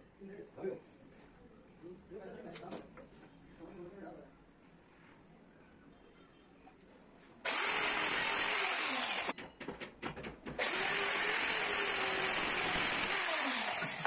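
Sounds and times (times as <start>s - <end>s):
circular saw cutting plywood: 7.5s - 9.3s, 10.6s - 14.0s.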